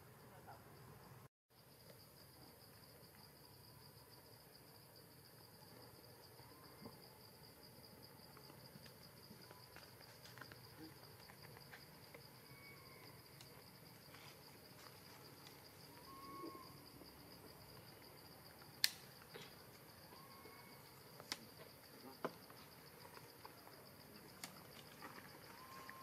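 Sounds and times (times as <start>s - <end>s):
high-pitched insect trill: 1.6s - 26.0s
sharp clicks: 18.8s - 19.5s.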